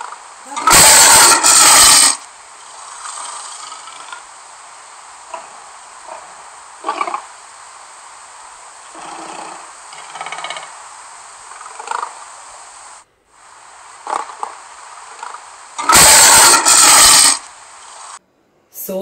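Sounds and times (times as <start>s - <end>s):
lion roaring: 0.0s - 2.2s, 5.3s - 7.3s, 8.9s - 10.8s, 15.2s - 17.4s
lion growling: 5.2s - 7.3s, 8.8s - 10.8s.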